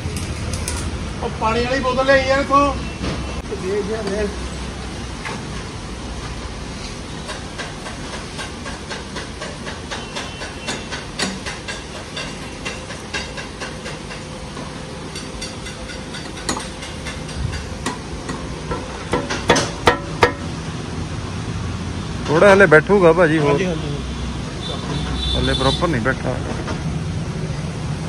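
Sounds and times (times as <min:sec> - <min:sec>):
metallic clicks and knocks: 0:07.3 - 0:20.5.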